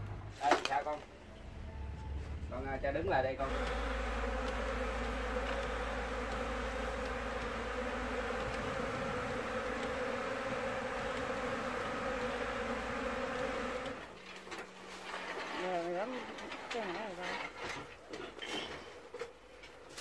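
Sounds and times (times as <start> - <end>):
bees buzzing: 3.4 - 14.2.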